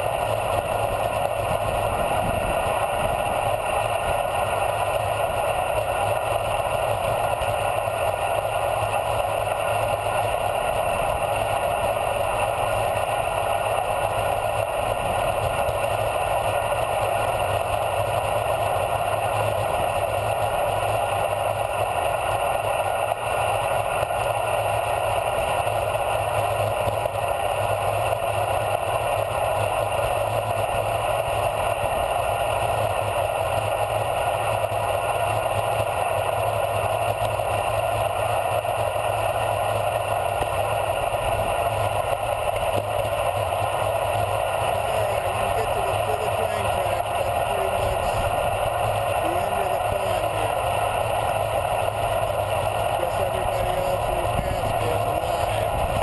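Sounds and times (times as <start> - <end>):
wind rushing over microphone: 1.3 - 4.2, 55.6 - 56.0.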